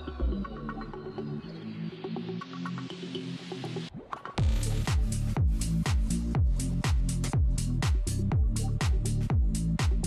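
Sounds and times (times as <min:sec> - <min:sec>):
electronic music: 0:00.0 - 0:10.0
deep bass kicks: 0:04.4 - 0:10.0.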